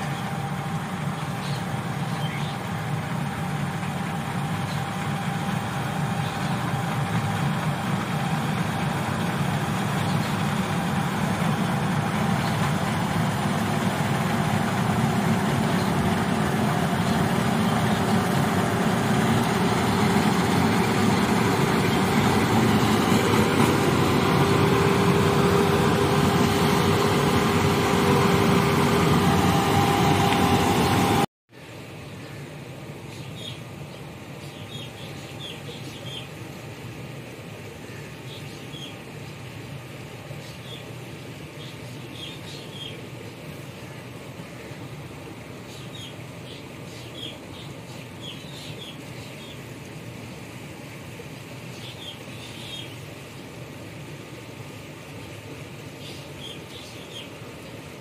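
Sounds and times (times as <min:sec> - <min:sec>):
machinery whine: 0:00.0 - 0:31.3
combine harvester running: 0:00.0 - 0:58.0.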